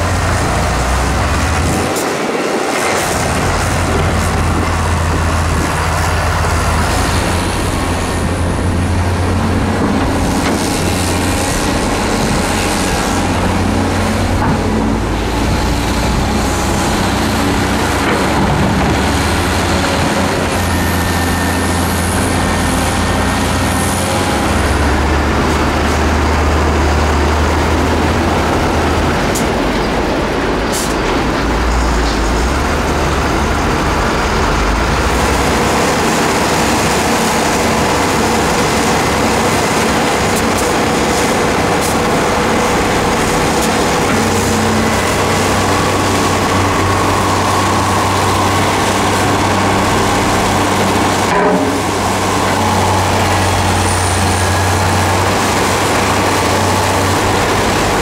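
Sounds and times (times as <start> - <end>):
heavy diesel engines running: 0.0 - 58.0.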